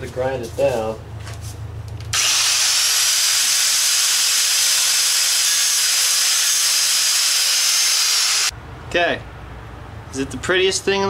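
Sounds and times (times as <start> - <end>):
angle grinder grinding steel: 2.2 - 8.5.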